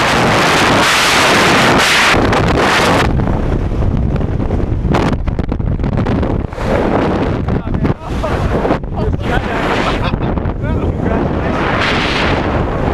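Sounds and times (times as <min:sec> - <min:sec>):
gusty wind buffeting: 0:00.0 - 0:12.9
wind rushing over microphone: 0:00.0 - 0:12.9.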